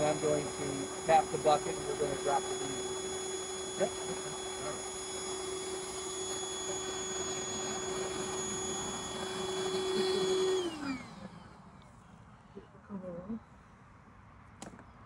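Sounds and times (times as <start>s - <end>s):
shop vacuum running: 0.0s - 11.8s.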